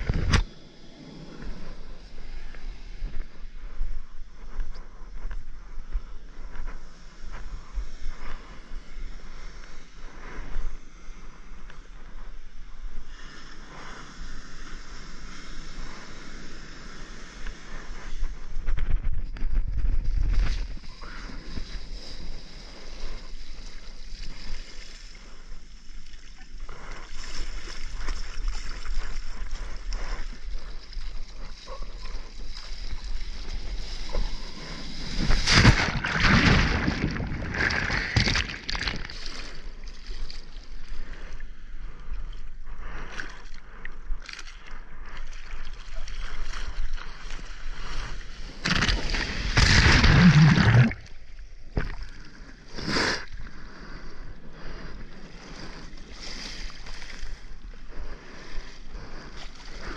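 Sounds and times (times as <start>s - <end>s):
seawater sloshing and gurgling: 31.0s - 40.6s, 48.2s - 52.2s
water churning surges: 32.9s - 39.5s, 48.5s - 51.2s.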